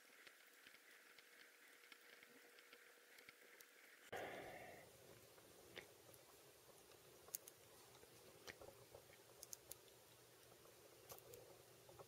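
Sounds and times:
faint clicks of fingers working wires: 5.1s - 12.0s.

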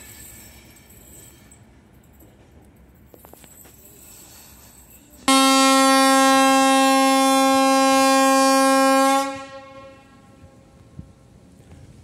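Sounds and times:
locomotive horn: 5.3s - 10.8s.

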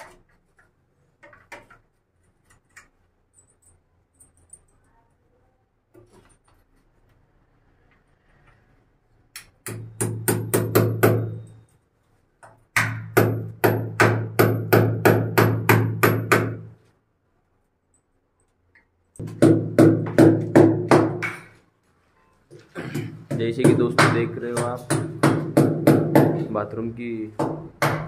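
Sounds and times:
hammer striking chisel: 9.3s - 11.6s, 12.4s - 16.7s, 19.2s - 21.6s, 23.0s - 26.5s, 27.4s - 28.0s.

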